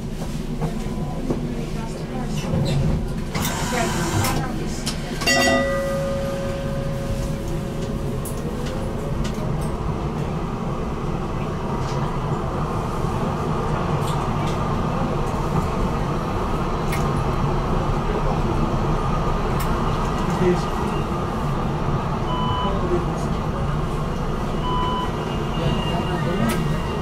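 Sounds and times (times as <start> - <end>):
tram running on track: 0.0 - 27.0.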